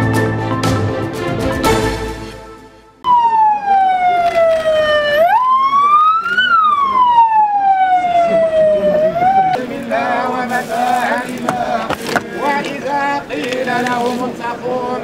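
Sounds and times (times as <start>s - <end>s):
vehicle siren wailing: 3.0s - 9.6s
voices: 3.3s - 15.0s.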